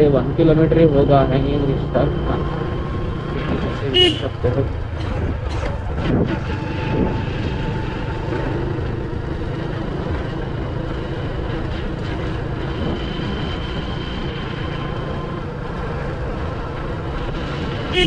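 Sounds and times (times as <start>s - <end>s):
motorcycle engine running: 0.0s - 18.0s
wind noise on microphone: 4.8s - 8.3s, 11.6s - 15.0s.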